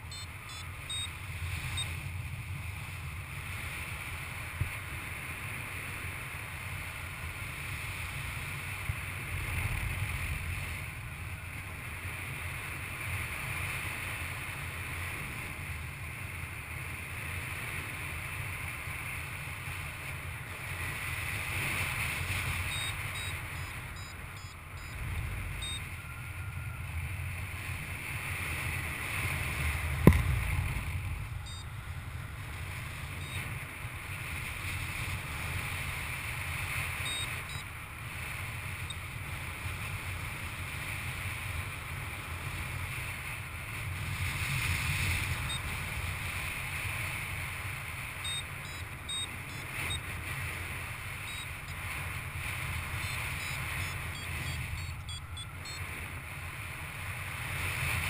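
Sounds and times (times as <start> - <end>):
faint short high beeps: 0.0 - 2.0, 22.5 - 26.8, 31.4 - 31.9, 33.1 - 33.5, 37.0 - 37.7, 48.2 - 50.1, 51.2 - 51.8, 52.9 - 55.9
sharp knock: 30.0 - 30.4.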